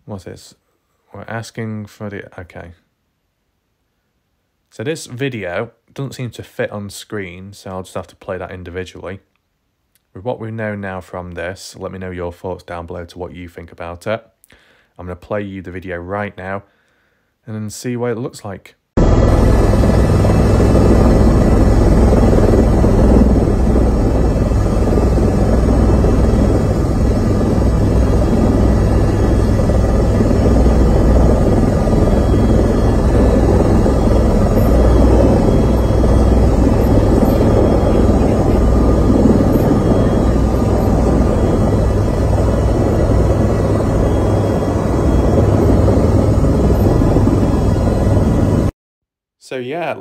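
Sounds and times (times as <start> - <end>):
faint whining tones: 19.0 - 48.7
helicopter rotor and engine drone: 19.0 - 48.7.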